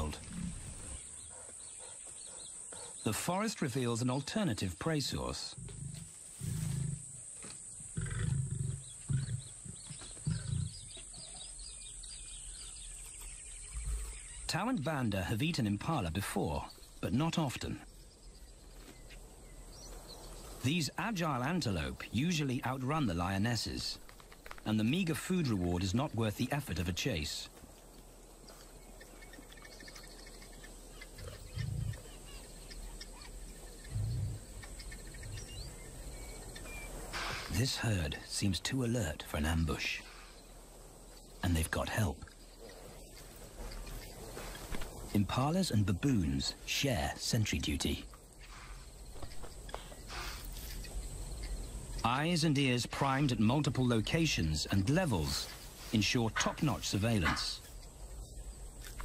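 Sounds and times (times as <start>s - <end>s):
birds chirping faintly: 0.0s - 59.0s
high insect drone: 4.4s - 14.5s
lions growling low: 7.9s - 11.2s, 33.9s - 34.6s.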